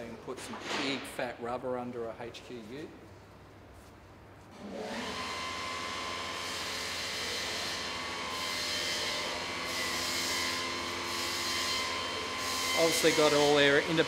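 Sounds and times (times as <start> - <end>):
workshop machine hissing and whining: 4.6 - 14.0.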